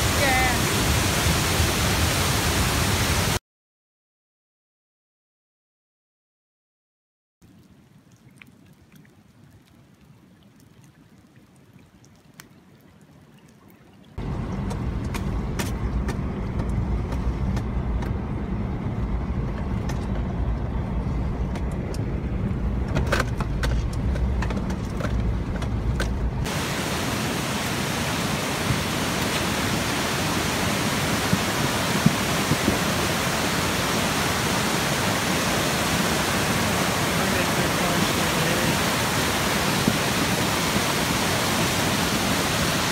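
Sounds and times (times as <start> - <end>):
rushing floodwater: 0.0 - 3.4, 26.4 - 42.9
vehicle cabin rumble: 14.2 - 26.5
roar of flooded creek: 26.4 - 42.9.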